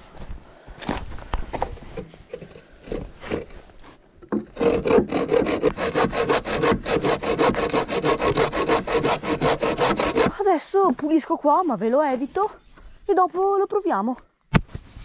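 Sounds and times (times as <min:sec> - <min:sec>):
hand saw cutting wood: 0:04.3 - 0:10.4.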